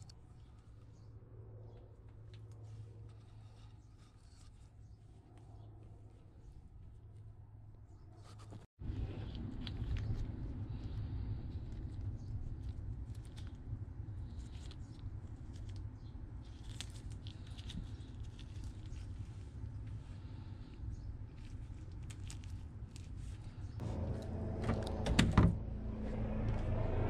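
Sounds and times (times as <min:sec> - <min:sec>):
steady low hum: 0:08.8 - 0:27.0.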